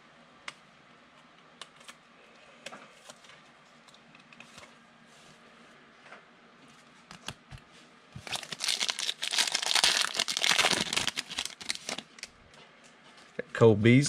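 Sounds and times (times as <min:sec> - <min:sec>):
foil wrapper crinkling and tearing: 0:08.2 - 0:12.3.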